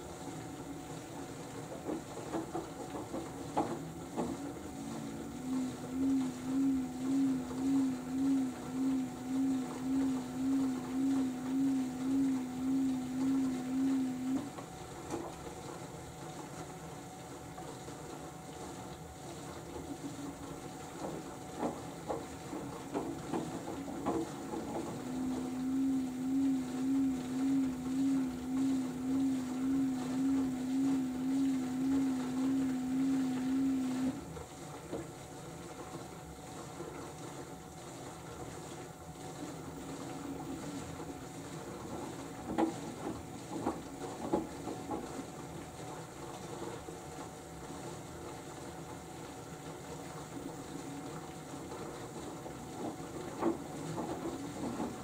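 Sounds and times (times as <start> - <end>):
washing machine motor humming: 0.0 - 55.0.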